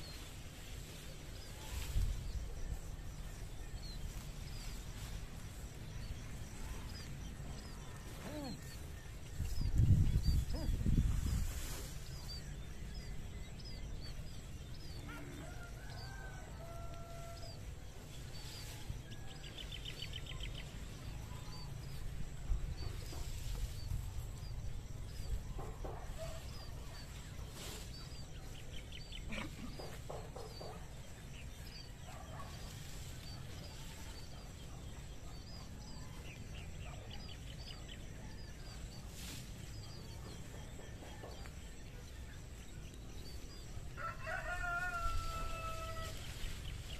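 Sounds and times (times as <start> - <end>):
small birds chirping: 0.0 - 16.3, 17.3 - 46.9
chickens clucking: 29.2 - 31.2.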